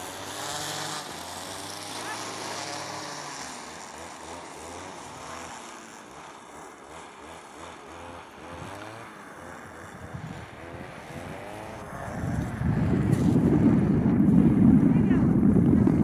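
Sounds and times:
motor running with sliding pitch: 0.0 - 16.0
wind noise on microphone: 9.9 - 16.0.

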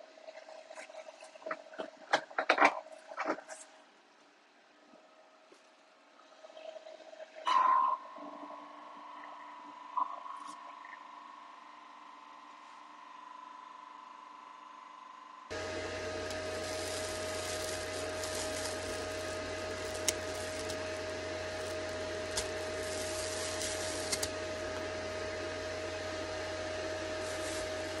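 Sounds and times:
machine whirring and humming: 13.3 - 28.0.

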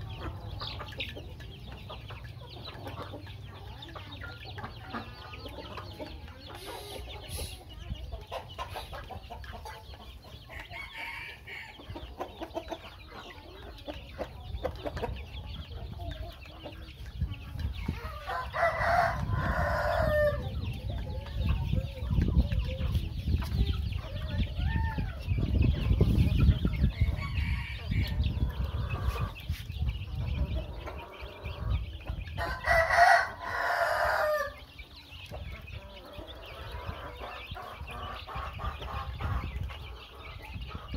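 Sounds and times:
chickens clucking: 0.0 - 40.9
chicks peeping: 0.0 - 40.9
rooster crowing: 32.4 - 34.6.

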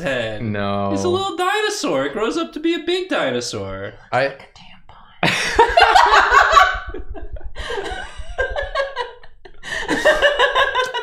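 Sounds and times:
people laughing: 5.2 - 11.0.

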